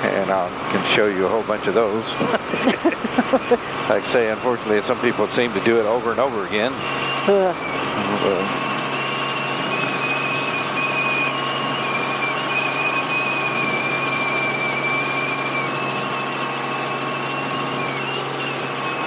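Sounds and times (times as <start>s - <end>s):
helicopter engine and rotors: 0.0s - 19.0s
high whine: 0.0s - 19.0s.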